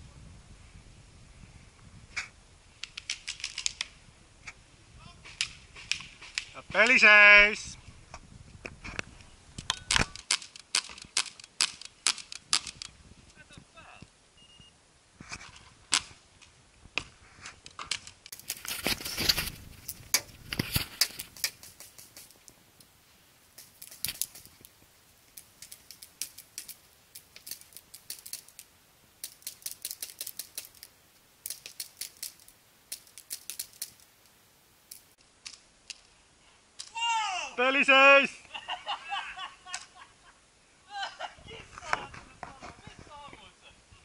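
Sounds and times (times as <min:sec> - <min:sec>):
paintballs breaking against cover: 0:02.8 - 0:03.9, 0:05.2 - 0:07.0, 0:09.6 - 0:13.0, 0:17.6 - 0:22.5, 0:23.5 - 0:34.1
paintball markers firing: 0:09.6 - 0:13.0, 0:17.7 - 0:22.4, 0:23.6 - 0:24.7, 0:25.3 - 0:34.1.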